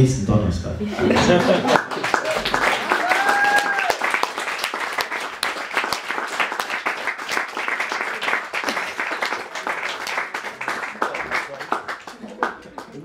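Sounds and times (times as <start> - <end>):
audience applauding: 1.0 - 13.0.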